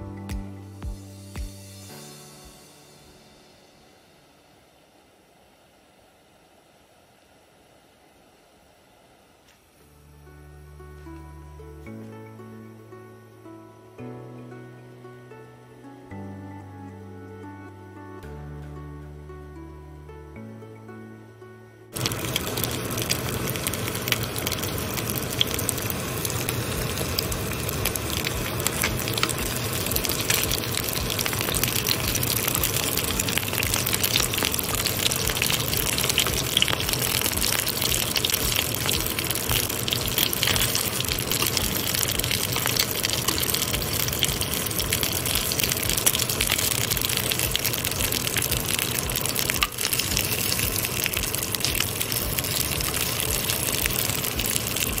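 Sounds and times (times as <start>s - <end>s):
food sizzling in hot oil: 22.0s - 55.0s.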